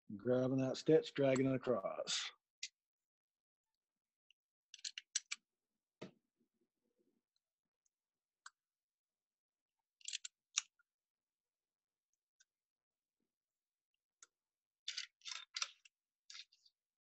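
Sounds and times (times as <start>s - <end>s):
small metal clicks: 4.7s - 5.4s, 9.9s - 10.8s, 14.2s - 16.8s.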